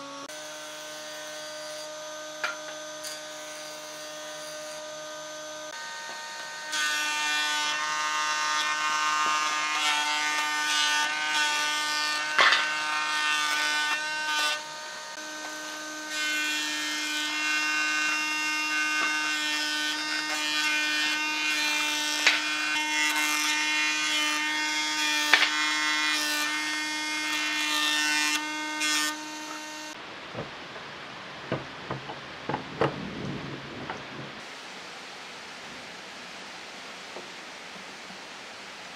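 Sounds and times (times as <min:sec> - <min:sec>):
planer cutting wooden board: 0:00.0 - 0:30.0
sharp knocks: 0:31.5 - 0:33.0.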